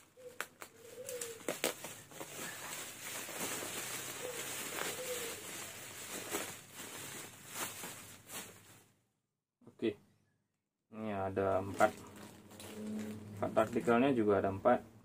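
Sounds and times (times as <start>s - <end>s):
bubble wrap rustling and crinkling: 0.0s - 9.0s, 11.5s - 14.2s.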